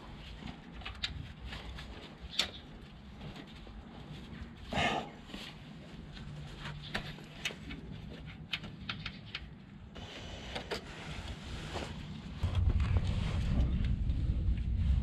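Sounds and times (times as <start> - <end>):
faint low hum: 0.0 - 15.0
hands clicking and tapping metal parts: 6.6 - 9.8.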